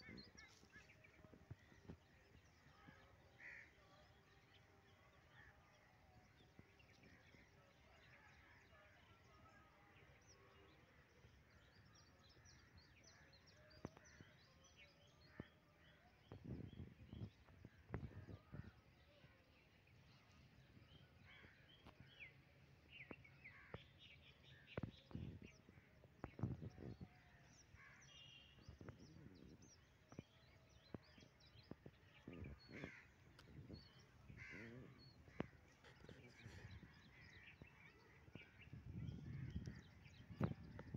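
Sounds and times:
bird calls and chirps: 0:00.0 - 0:40.9
low microphone rumbles: 0:28.6 - 0:40.9.

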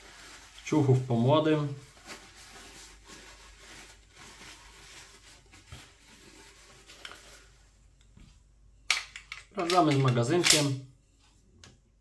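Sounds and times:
paper towel rubbing on metal: 0:00.0 - 0:07.7.

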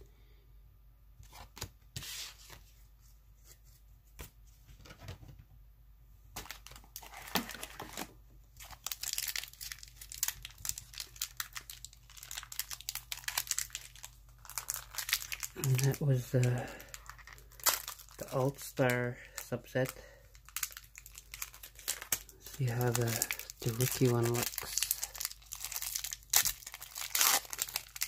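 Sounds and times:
card pack wrapper crinkling: 0:06.4 - 0:28.0.

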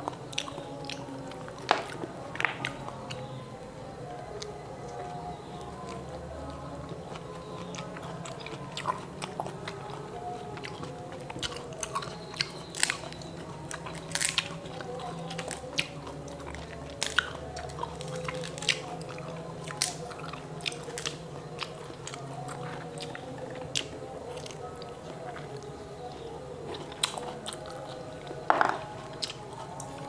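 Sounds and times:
fruit rinds cracking: 0:00.0 - 0:03.3, 0:11.4 - 0:16.1, 0:28.4 - 0:29.9
chewing: 0:00.0 - 0:30.0
faint low hum: 0:00.0 - 0:30.0.

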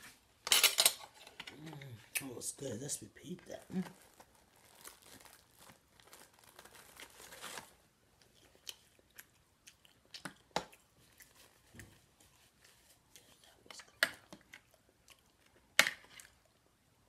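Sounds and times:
crisp taco shells crunching: 0:03.4 - 0:16.7.

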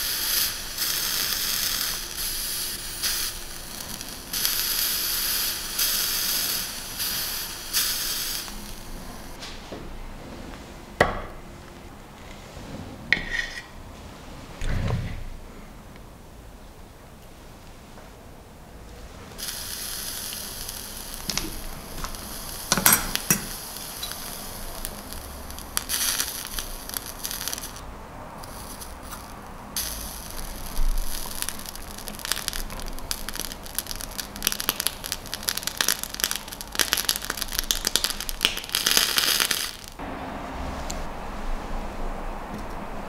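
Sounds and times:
food sizzling and crackling on coils: 0:00.0 - 0:09.4, 0:19.1 - 0:40.0.

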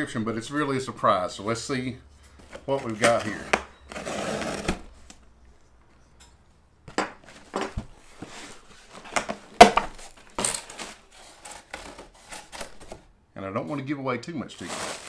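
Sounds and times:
cardboard rustling: 0:02.4 - 0:06.0, 0:07.2 - 0:13.1, 0:14.6 - 0:15.0.

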